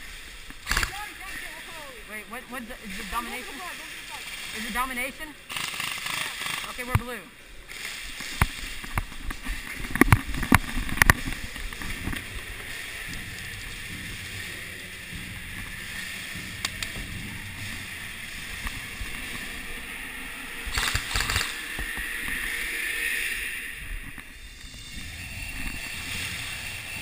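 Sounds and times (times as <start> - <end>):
steady hiss: 0.0 - 27.0
airsoft rifle firing burst: 5.5 - 6.9.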